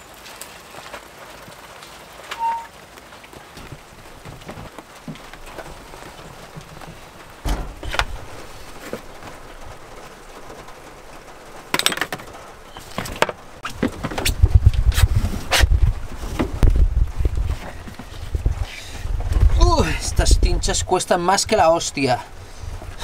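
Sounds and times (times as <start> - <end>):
thuds: 3.6 - 9.4
knocks and clatter of dirt bike: 11.7 - 19.7.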